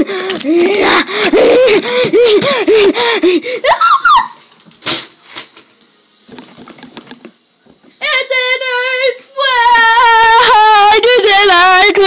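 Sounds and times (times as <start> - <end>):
girl laughing wildly: 0.5 - 4.4.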